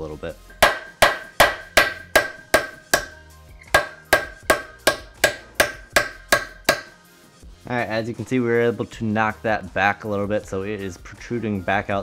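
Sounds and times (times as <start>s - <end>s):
hammer striking metal punch: 0.5s - 7.0s.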